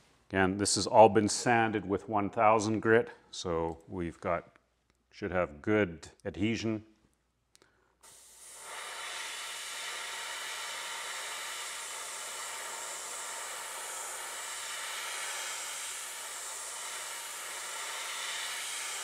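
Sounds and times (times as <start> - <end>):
airbrush hissing: 8.0 - 19.0.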